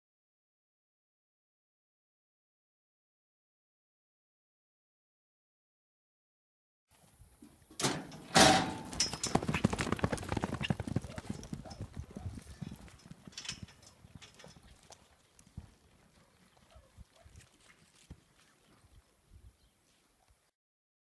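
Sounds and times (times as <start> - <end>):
sharp bangs of chute opening: 7.8 - 9.2
horses galloping on dirt: 8.4 - 19.2.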